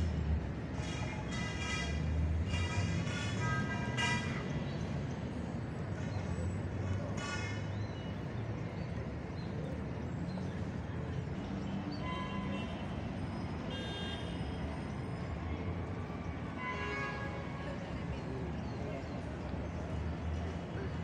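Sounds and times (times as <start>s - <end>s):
street traffic rumbling: 0.0s - 21.0s
car horn honks: 13.7s - 14.4s.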